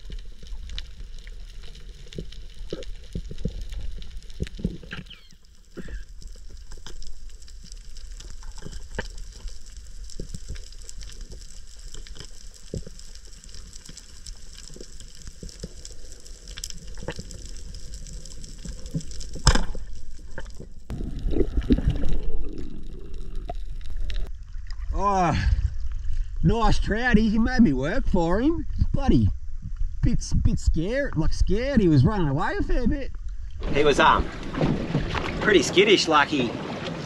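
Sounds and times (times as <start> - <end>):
underwater crackling and clicks: 0.0 - 24.9
water churning: 0.0 - 25.0, 33.6 - 37.0
low underwater rumble: 0.0 - 26.4.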